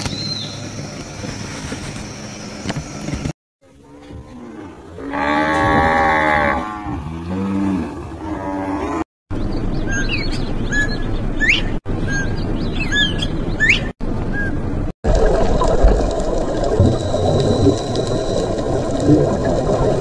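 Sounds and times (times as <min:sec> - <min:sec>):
cattle mooing: 0:03.8 - 0:09.0
small bird chirping: 0:09.4 - 0:14.6.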